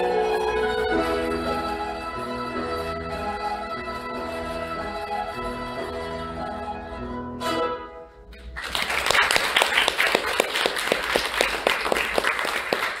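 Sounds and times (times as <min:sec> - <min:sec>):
audience applauding: 0:08.4 - 0:13.0.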